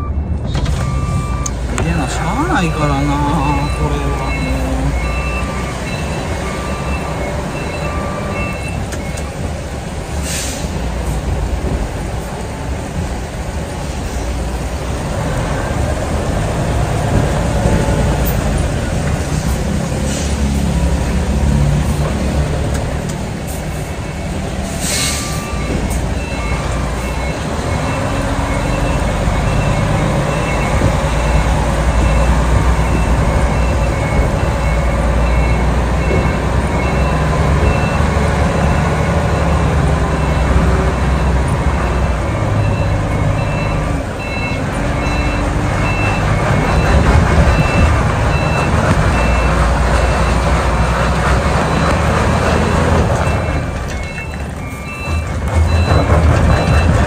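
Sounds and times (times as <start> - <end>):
reversing beeper: 0.0 - 9.3, 23.8 - 50.7, 51.6 - 57.0
diesel truck engine under load: 0.0 - 57.0.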